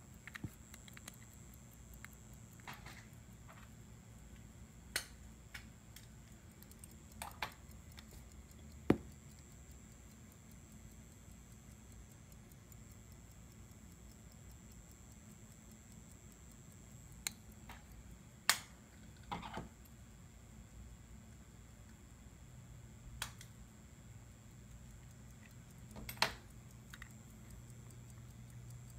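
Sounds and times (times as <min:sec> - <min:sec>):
pocket watch ticking: 0:00.0 - 0:18.8, 0:24.2 - 0:28.9
watch handling clicks: 0:00.1 - 0:03.2.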